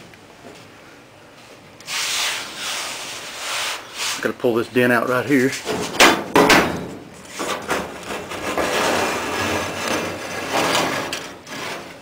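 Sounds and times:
straightedge rubbing on metal: 1.9s - 4.3s
straightedge knocking on sheet metal: 5.7s - 6.9s.

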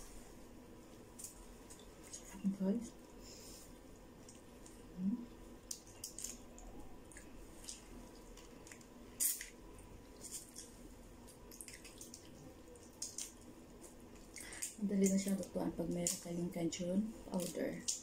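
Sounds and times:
wet mouth eating sounds: 4.2s - 13.5s.

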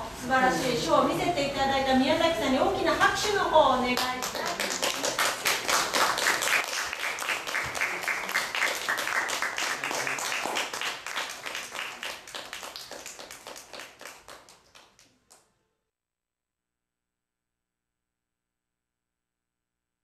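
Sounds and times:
audience applauding: 4.0s - 15.4s.

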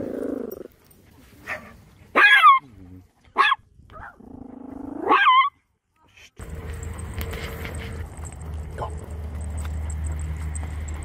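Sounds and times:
dog growling: 0.0s - 0.8s
dog barking: 1.4s - 2.6s, 3.4s - 4.2s.

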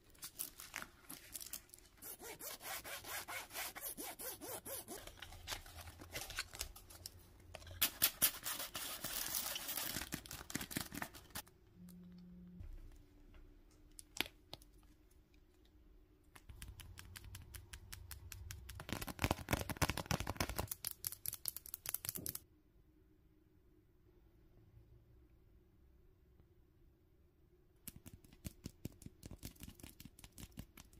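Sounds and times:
rustling of mesh pencil pouch: 0.0s - 2.3s.

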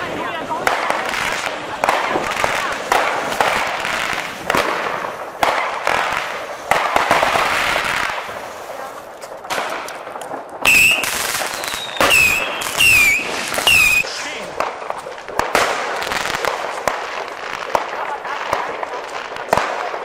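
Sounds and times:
firework bangs: 0.0s - 20.0s
whistling fireworks: 10.5s - 20.0s.

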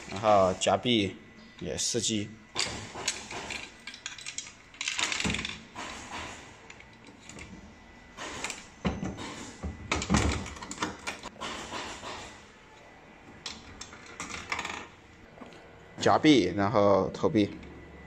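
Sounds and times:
coin mechanism clicking and clattering: 2.6s - 5.6s.

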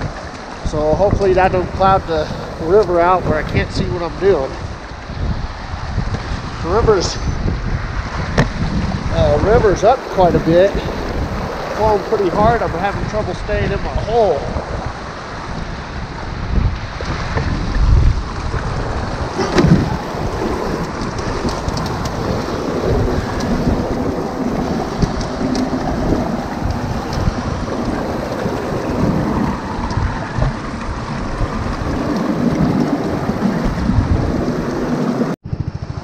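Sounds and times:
water running over sluice box: 0.0s - 4.6s, 9.1s - 14.4s, 18.4s - 35.4s
fast river rushing: 0.0s - 7.2s, 8.1s - 35.4s
wind buffeting microphone: 0.0s - 36.0s.

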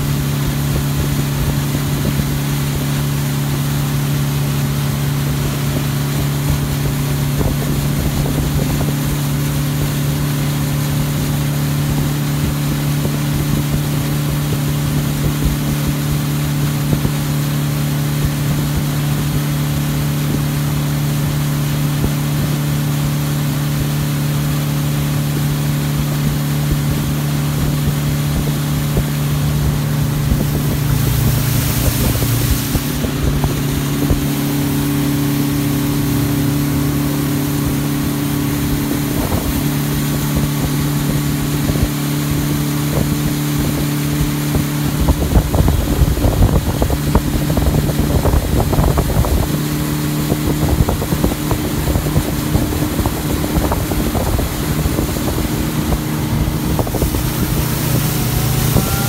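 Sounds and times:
speedboat engine: 0.0s - 59.0s
wind on microphone: 0.0s - 59.0s.

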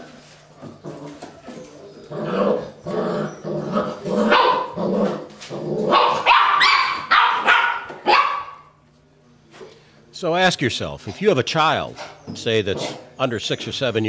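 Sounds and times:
puppies growling: 0.6s - 6.2s, 11.1s - 13.2s
puppies barking and yelping: 0.7s - 8.6s.

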